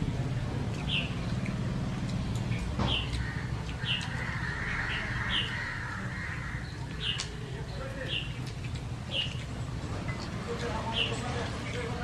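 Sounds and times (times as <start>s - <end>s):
bird calling: 2.9s - 9.5s.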